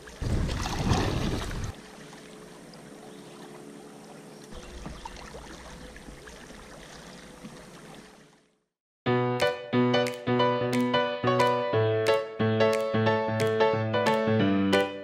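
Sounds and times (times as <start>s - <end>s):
river water lapping around kayak: 0.0s - 8.6s.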